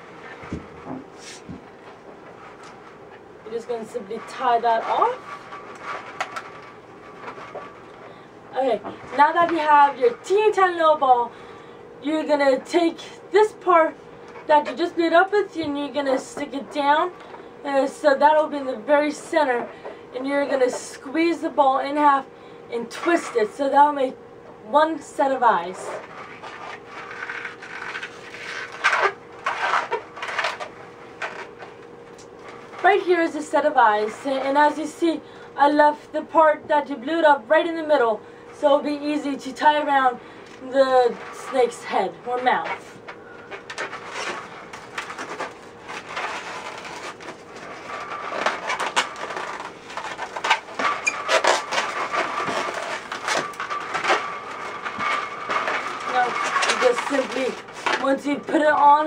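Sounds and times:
balloons squeaking and rubbing: 43.7s - 59.0s
balloon rubbing squeaks: 48.3s - 54.2s.

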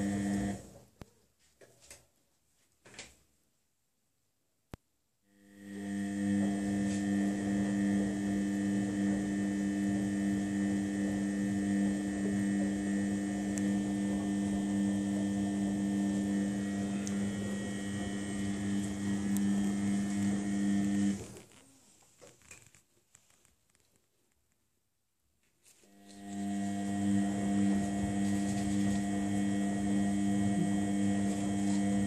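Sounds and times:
washing machine humming: 0.0s - 0.8s, 5.4s - 21.4s, 25.9s - 32.0s.

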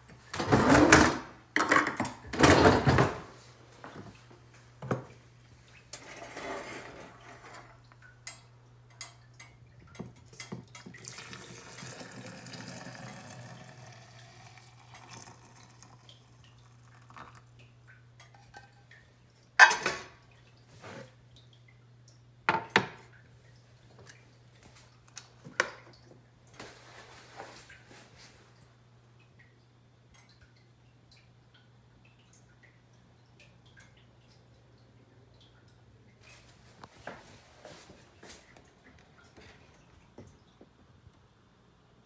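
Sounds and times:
water pouring and splashing: 9.0s - 21.7s, 22.9s - 28.6s.

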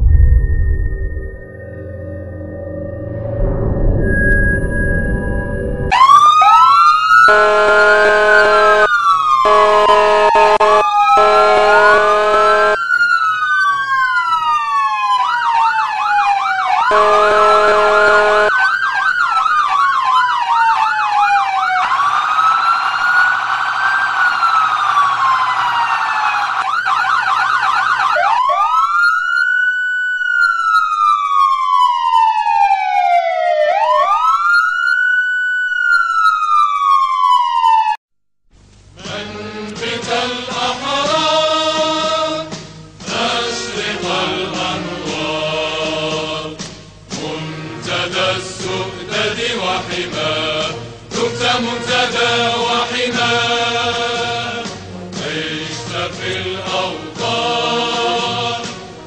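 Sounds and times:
electronic siren wailing and yelping: 5.8s - 38.0s.

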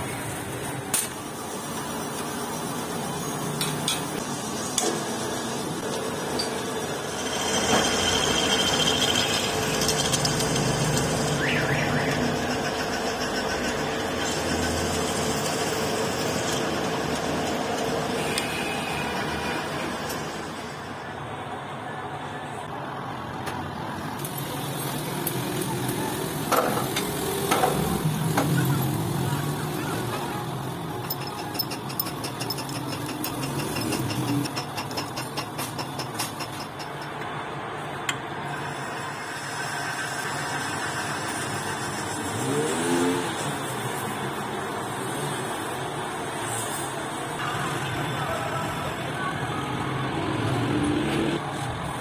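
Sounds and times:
drill press whining: 4.7s - 20.6s
drill bit squeals: 6.4s - 15.6s, 18.1s - 19.9s.

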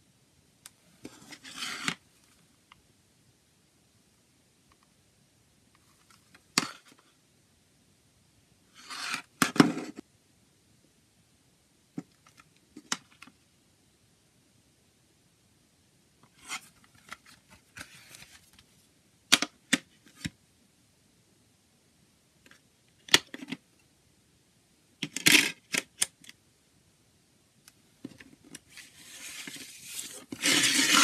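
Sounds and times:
hands sliding on plastic case: 28.9s - 31.0s.

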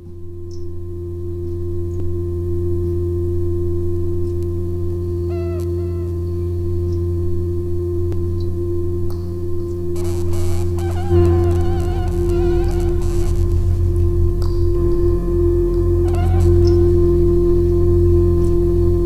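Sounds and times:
drone of low tones: 0.0s - 19.0s
short pitched notes: 10.0s - 19.0s.

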